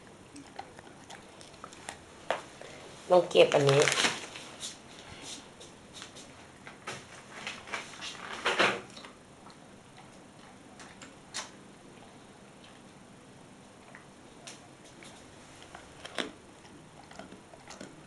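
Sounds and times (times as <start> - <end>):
dog chewing: 0.0 - 2.8, 8.9 - 13.0, 13.7 - 18.0
plastic bag crinkling: 3.3 - 4.6.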